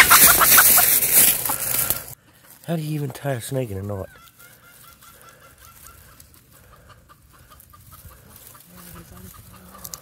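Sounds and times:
rustling of dry leaves: 0:00.0 - 0:10.0.

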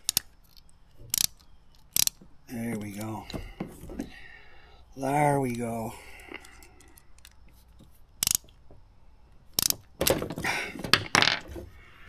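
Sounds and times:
ratcheting screwdriver clicking: 0:00.0 - 0:02.2, 0:08.2 - 0:08.6, 0:09.6 - 0:09.9.

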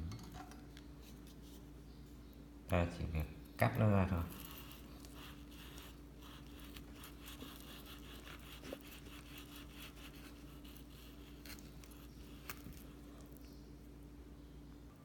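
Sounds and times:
steady low hum: 0:00.0 - 0:15.0
knife scraping through frozen fish: 0:04.3 - 0:13.4.

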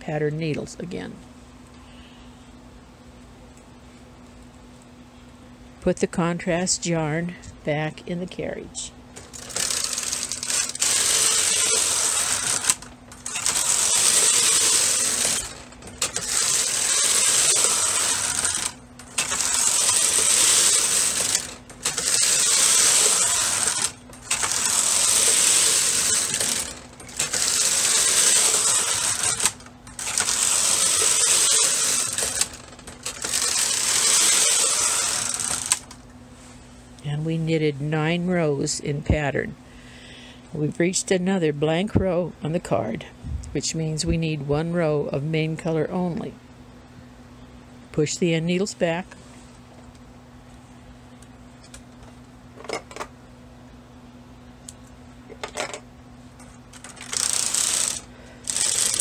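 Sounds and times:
knitting machine carriage clattering: 0:09.2 - 0:36.0, 0:56.7 - 0:59.0.

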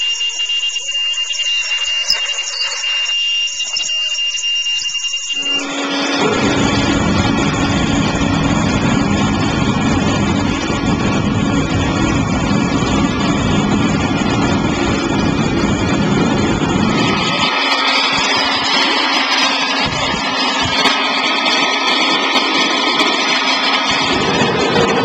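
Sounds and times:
combustion chamber flame roaring: 0:04.3 - 0:25.0
deep rumble: 0:06.2 - 0:25.0.

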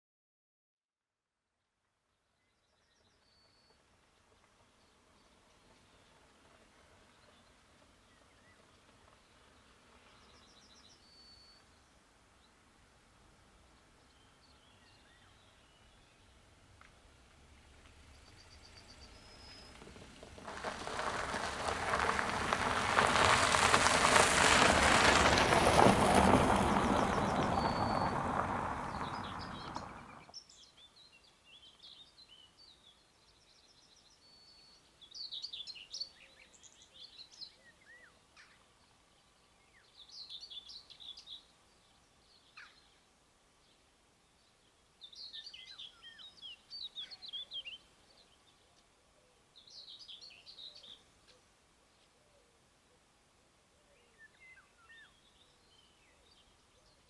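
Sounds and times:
vehicle passing close by: 0:18.5 - 0:30.3
birds chirping: 0:25.3 - 0:43.0.

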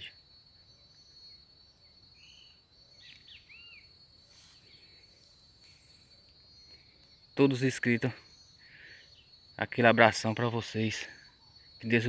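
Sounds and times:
high-pitched insect drone: 0:00.0 - 0:12.0
short bird chirps: 0:02.2 - 0:07.2.

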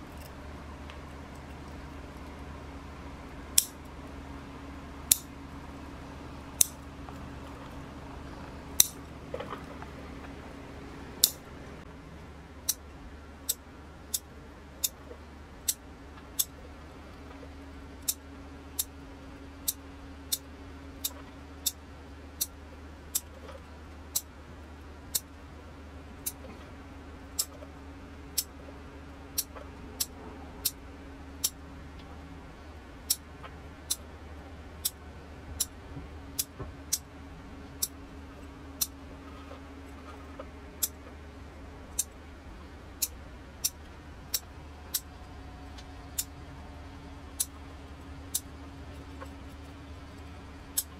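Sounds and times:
scissors snipping: 0:03.5 - 0:03.8, 0:06.5 - 0:07.8.

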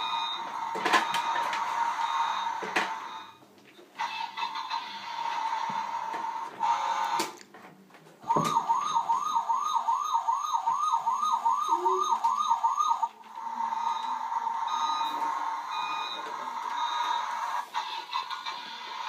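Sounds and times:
toy electronic siren wailing: 0:08.3 - 0:19.0.

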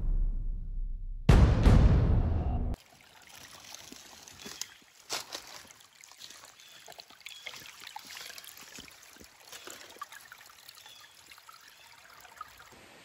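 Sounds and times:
brook trickling over stones: 0:02.8 - 0:12.8.

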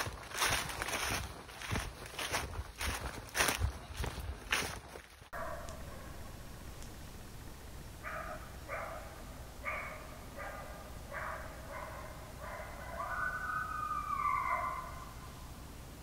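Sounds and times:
animal calling: 0:11.2 - 0:15.2.

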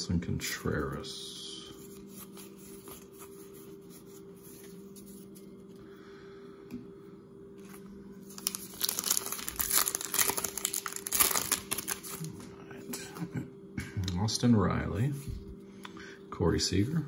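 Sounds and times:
faint steady hum: 0:00.0 - 0:17.0
foil wrapper crinkling and tearing: 0:07.6 - 0:12.4.

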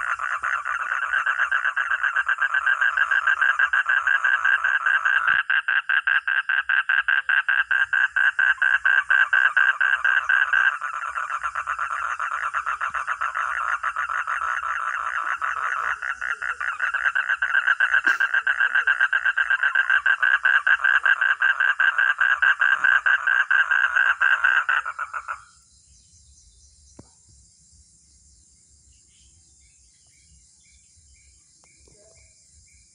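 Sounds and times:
frog pulsing trill: 0:00.0 - 0:25.5
crickets chirping: 0:00.0 - 0:32.9.

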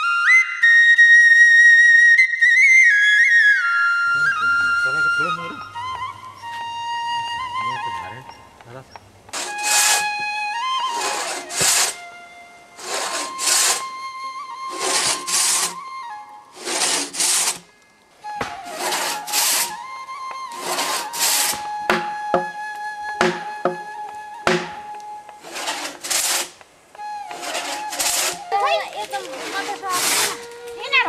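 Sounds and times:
flute music: 0:00.0 - 0:31.0
pit saw rasping through log: 0:09.3 - 0:10.2, 0:10.9 - 0:12.0, 0:12.8 - 0:13.9, 0:14.7 - 0:15.8, 0:16.6 - 0:17.6, 0:18.4 - 0:19.8, 0:20.5 - 0:22.5, 0:23.2 - 0:23.8, 0:24.5 - 0:24.8, 0:25.4 - 0:26.6, 0:27.2 - 0:30.7
sharp knocks: 0:18.4 - 0:19.0, 0:21.5 - 0:22.6, 0:23.2 - 0:25.0.

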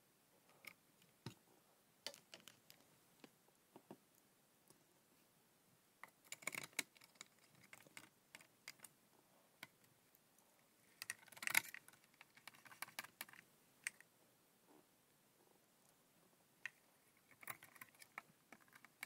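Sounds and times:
faint clicks and rattles: 0:06.0 - 0:09.0, 0:09.6 - 0:14.1, 0:16.6 - 0:19.0.

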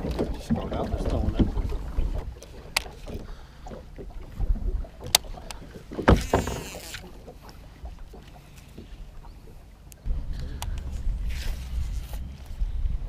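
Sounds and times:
reel spool whirring: 0:06.2 - 0:07.2
wind buffeting microphone: 0:10.0 - 0:13.0.

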